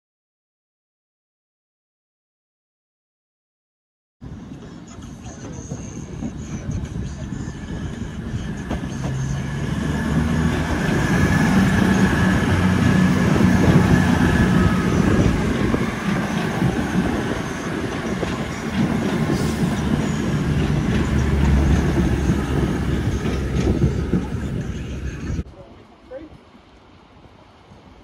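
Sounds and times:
diesel engines droning: 0:04.2 - 0:25.4
train wheels rumbling on track: 0:04.2 - 0:25.9.

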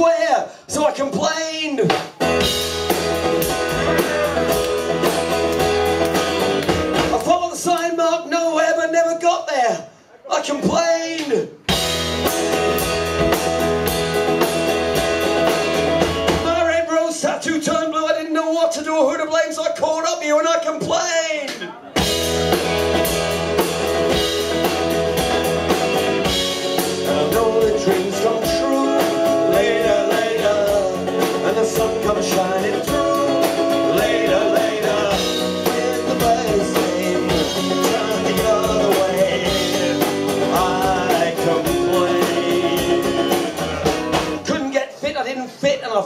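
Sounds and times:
drum kit beat with cymbals: 0:01.8 - 0:07.4, 0:11.6 - 0:16.6, 0:21.6 - 0:44.6
strummed guitar: 0:02.2 - 0:07.4, 0:11.7 - 0:16.6, 0:22.0 - 0:44.5
man singing: 0:03.5 - 0:04.7, 0:16.4 - 0:21.5, 0:26.7 - 0:44.6.

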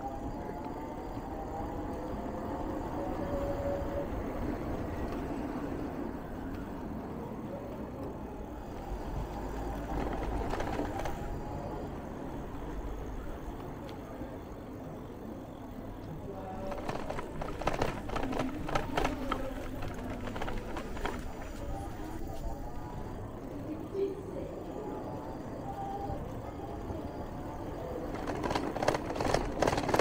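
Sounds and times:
bicycle tyre noise: 0:08.5 - 0:12.7, 0:16.2 - 0:23.2.

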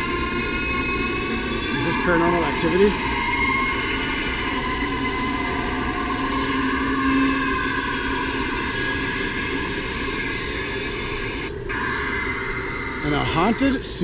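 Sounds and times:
tv static hiss: 0:00.0 - 0:03.0.

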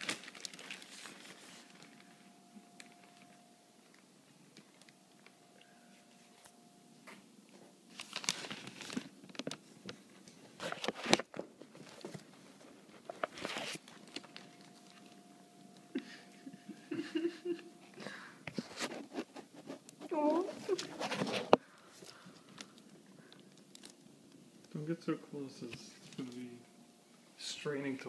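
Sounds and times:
bag rustling and crinkling: 0:00.0 - 0:03.4, 0:07.9 - 0:15.3, 0:18.6 - 0:24.1
faint steady hum: 0:00.0 - 0:28.0.

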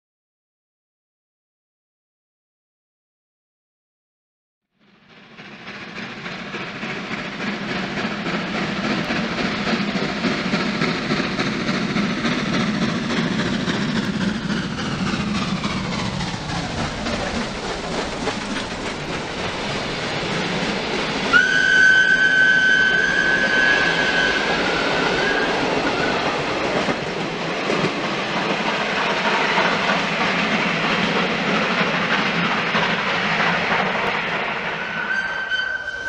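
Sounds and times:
train wheel noise: 0:04.8 - 0:36.0
steam locomotive whistle: 0:21.3 - 0:26.4, 0:34.7 - 0:36.0.

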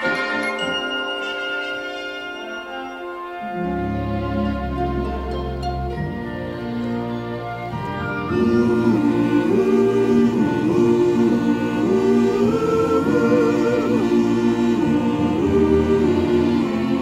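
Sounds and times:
background music: 0:00.0 - 0:17.0
choir singing held notes: 0:08.2 - 0:17.0.

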